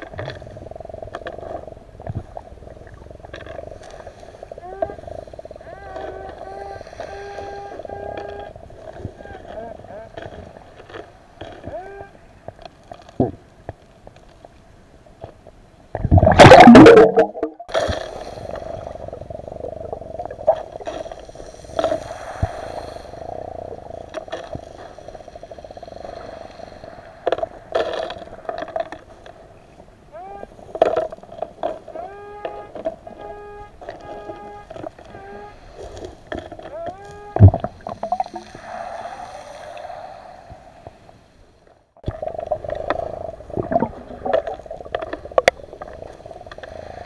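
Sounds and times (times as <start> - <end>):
bubbling rush: 16.0 - 24.1, 37.4 - 40.7, 42.0 - 46.5.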